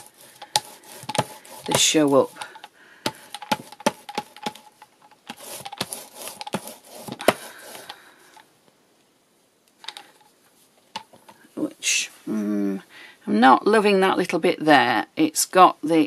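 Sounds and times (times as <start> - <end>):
paint roller rolling: 0.0 - 8.0
sharp clicks and taps: 0.4 - 8.0, 9.8 - 10.1.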